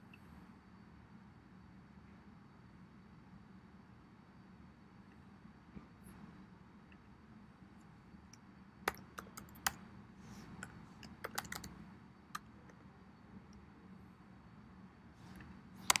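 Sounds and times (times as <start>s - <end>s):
computer keyboard keystroke clicks: 8.9s - 9.8s, 10.6s - 11.8s.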